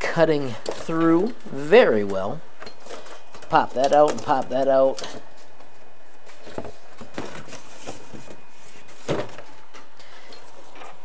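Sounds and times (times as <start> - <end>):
cardboard pieces tapping and rustling: 2.8 - 9.6.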